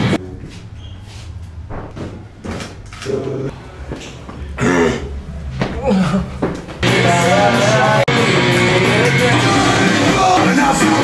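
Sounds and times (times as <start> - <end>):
loud rock music with electric guitar: 6.8 - 11.0.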